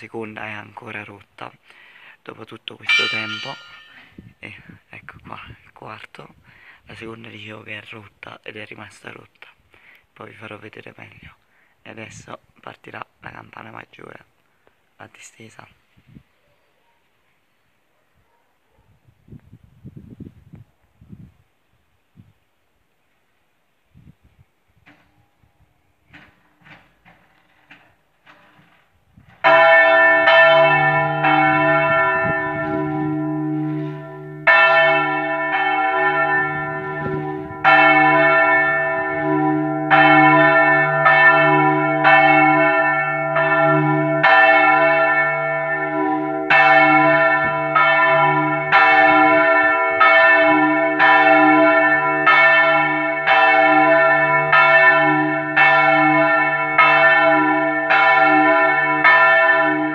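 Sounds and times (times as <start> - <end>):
church bell ringing: 2.9 - 4.1, 29.4 - 59.9.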